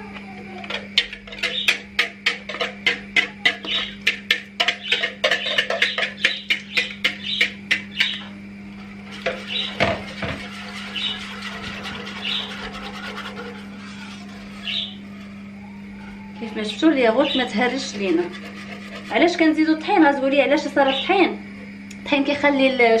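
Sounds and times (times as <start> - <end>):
whisk clinking against pot: 1.0 - 8.2, 9.1 - 14.6.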